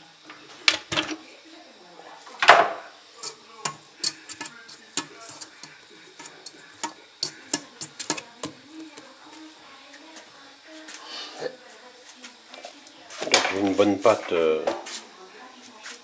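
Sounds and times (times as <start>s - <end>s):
dough tapping against metal bowl: 2.6s - 9.4s.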